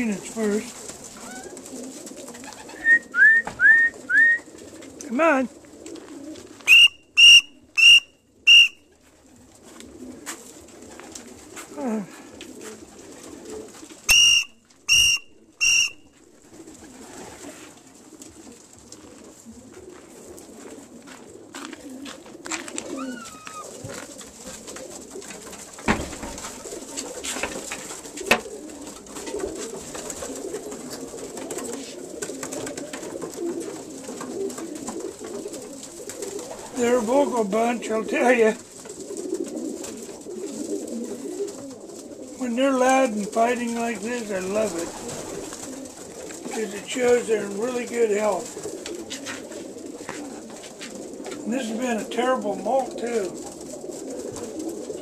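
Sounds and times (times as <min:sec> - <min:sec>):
pigeons cooing and squabbling: 0:00.0 - 0:55.0
whistle blasts: 0:06.7 - 0:08.8, 0:14.1 - 0:16.1
knocks: 0:25.8 - 0:26.4.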